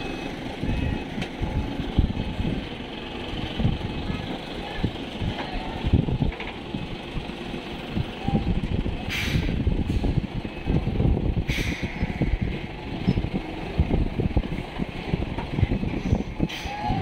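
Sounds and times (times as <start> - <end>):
truck diesel engine running: 0.0 - 17.0
air brake hisses: 9.1 - 10.1, 11.5 - 12.1.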